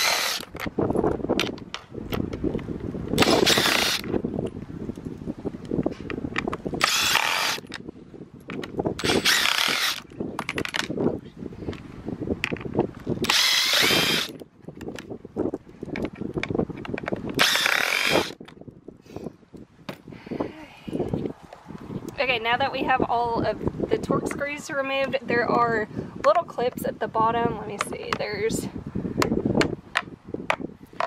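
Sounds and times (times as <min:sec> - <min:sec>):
power drill whining: 0:00.0 - 0:00.6, 0:03.2 - 0:04.1, 0:06.8 - 0:07.7, 0:09.0 - 0:10.1, 0:13.2 - 0:14.4, 0:17.4 - 0:18.4
small knocks and rattles: 0:10.4 - 0:11.0, 0:14.7 - 0:17.4.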